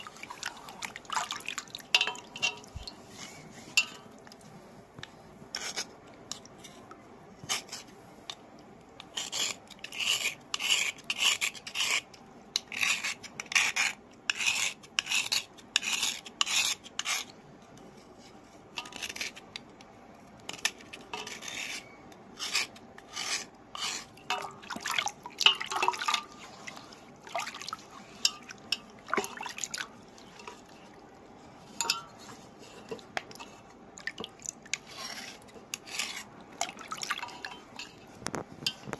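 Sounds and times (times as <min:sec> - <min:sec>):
knife scraping soft stone: 0:05.5 - 0:05.9, 0:07.4 - 0:07.9, 0:09.0 - 0:19.6, 0:20.4 - 0:24.6, 0:34.8 - 0:38.9.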